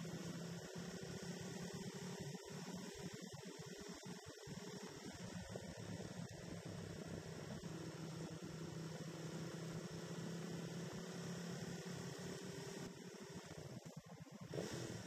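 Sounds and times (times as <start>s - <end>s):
muffled motorcycle engine hum: 0.0s - 15.0s.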